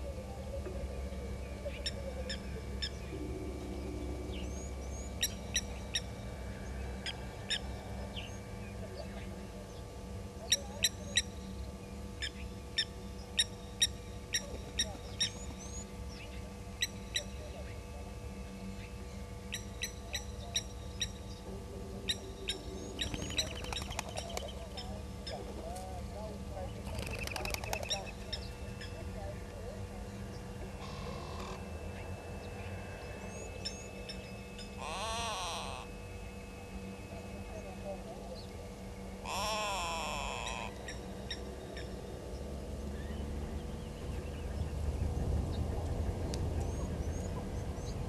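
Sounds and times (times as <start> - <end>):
low hum: 0.0 - 48.0
bird calling metallic notes: 1.1 - 9.4, 10.4 - 17.8, 18.4 - 25.5, 30.1 - 42.2.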